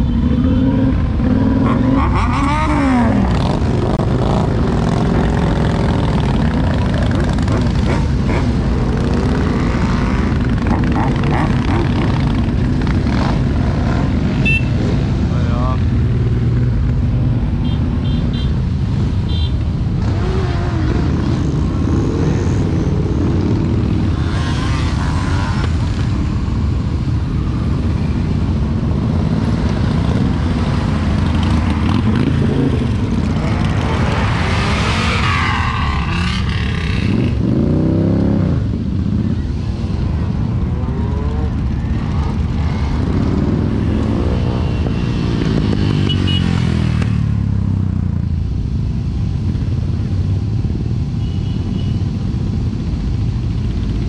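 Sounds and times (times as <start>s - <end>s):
motorcycles riding past: 0.0s - 54.0s.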